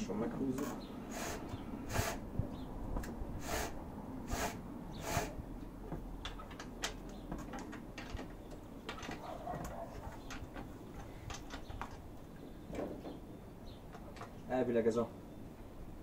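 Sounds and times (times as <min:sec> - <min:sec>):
rasping strokes of hand tool: 0:00.6 - 0:02.2, 0:03.4 - 0:05.4.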